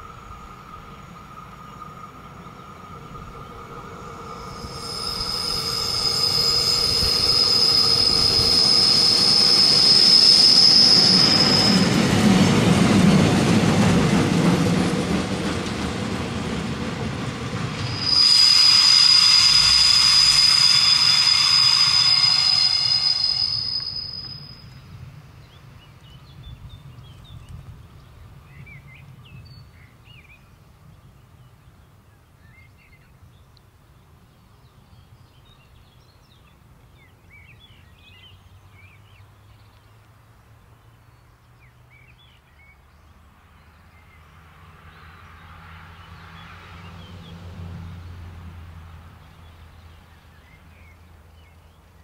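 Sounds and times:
railcar wheels squealing: 0.0 - 15.9, 17.4 - 24.9
railcar rumbling past: 0.0 - 31.8, 41.0 - 52.0.

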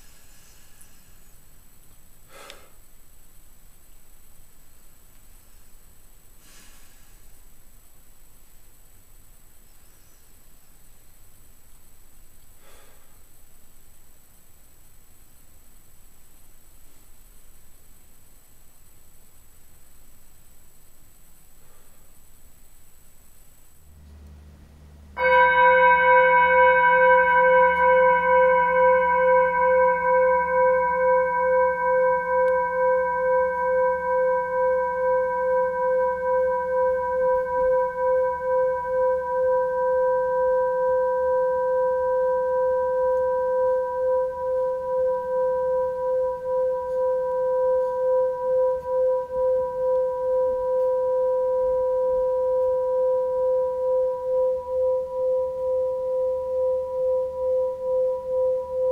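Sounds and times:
meditation bell ringing: 25.1 - 58.9.

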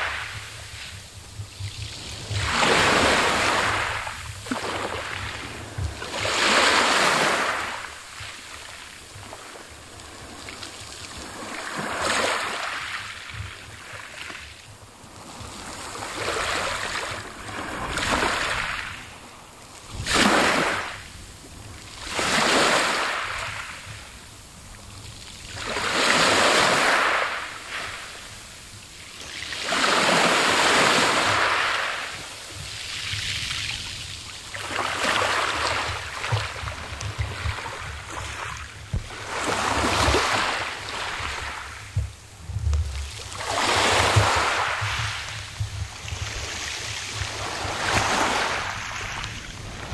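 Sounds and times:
waves breaking on pebbles: 2.0 - 9.5, 19.9 - 21.0, 22.0 - 23.7, 25.5 - 28.2, 29.3 - 32.1, 32.7 - 42.0, 42.9 - 49.9.

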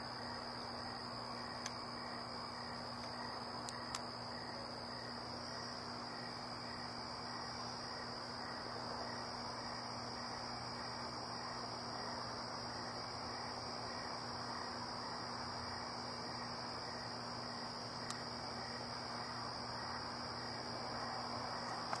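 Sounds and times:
crickets trilling: 0.0 - 22.0.

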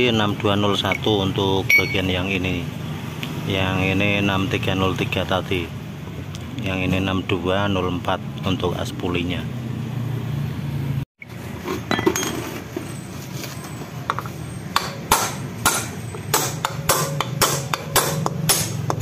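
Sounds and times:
hammer striking steel drift: 14.7 - 19.0.

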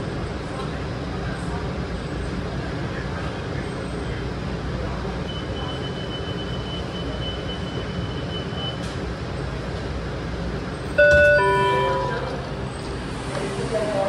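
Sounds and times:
train interior rumble and hiss: 0.0 - 14.0
thin high whine: 11.0 - 13.3.

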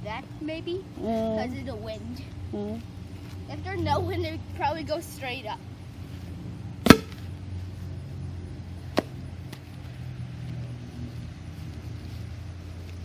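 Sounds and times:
stomp rocket pop: 6.8 - 7.3, 8.9 - 9.6.

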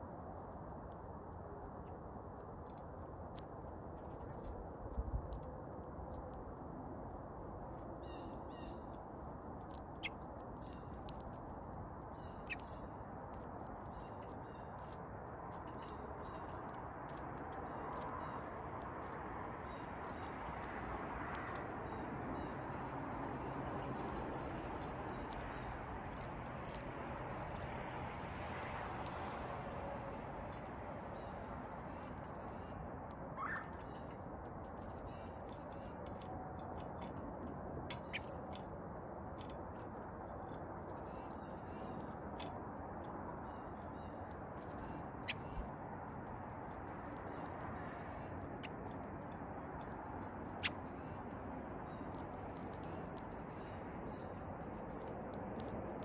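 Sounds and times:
small birds chirping: 7.5 - 56.0
rising bird call: 33.4 - 33.7.

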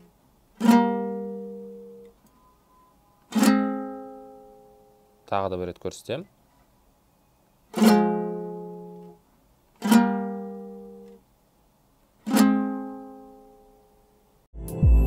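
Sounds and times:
strummed lute chords: 0.0 - 5.3, 7.7 - 9.2, 9.8 - 11.2, 12.2 - 15.0
outro jingle with deep bass: 14.6 - 15.0.

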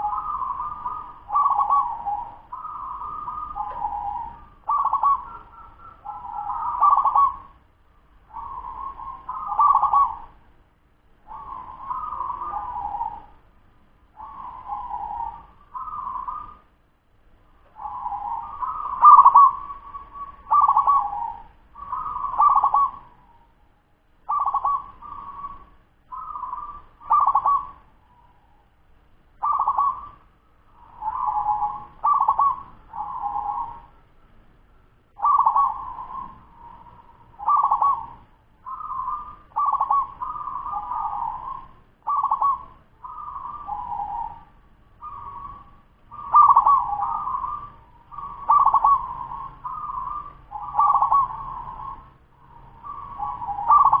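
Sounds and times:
dove cooing: 0.0 - 10.5, 11.2 - 13.5, 14.1 - 16.7, 17.6 - 23.6, 24.2 - 28.7, 29.4 - 34.1, 35.1 - 54.0.

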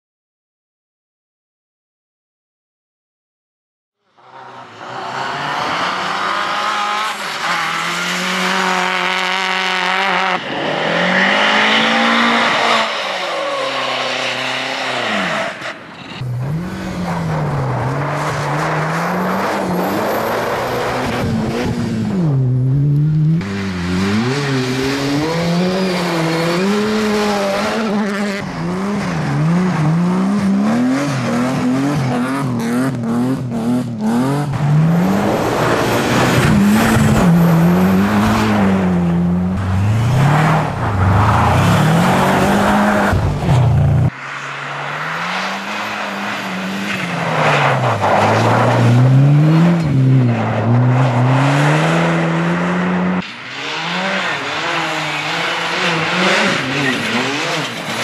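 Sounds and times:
rally car engines revving: 4.1 - 58.0.

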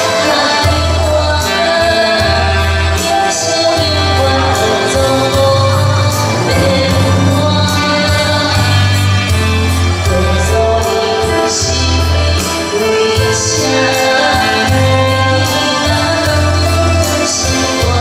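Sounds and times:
electronic keyboard: 0.0 - 18.0
saxophone: 0.0 - 18.0
woman singing into a microphone: 0.0 - 18.0
bass line: 3.8 - 10.8
steady beat: 5.0 - 9.7.

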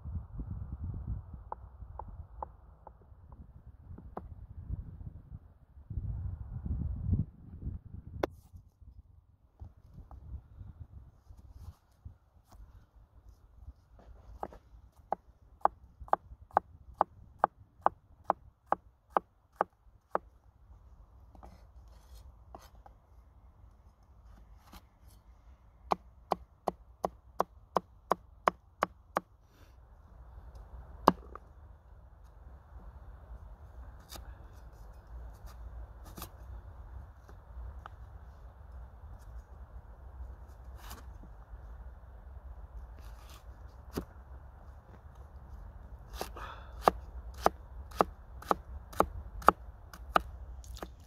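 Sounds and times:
cleaver chopping root vegetable: 46.1 - 51.0.

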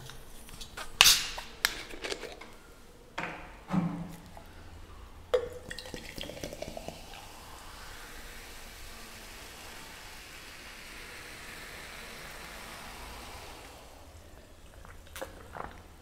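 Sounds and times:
fizzing cola pouring into glass: 5.3 - 16.0.

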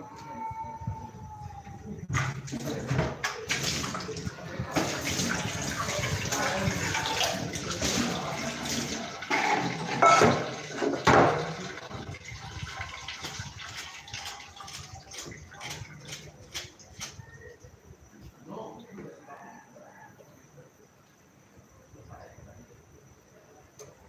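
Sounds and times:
tap water running and splashing: 2.1 - 17.3.

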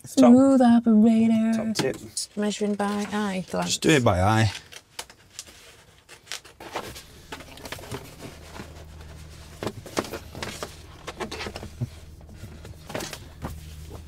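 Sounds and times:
vinyl film clicks and rustles: 4.3 - 14.0
steady low hum: 6.7 - 14.0.

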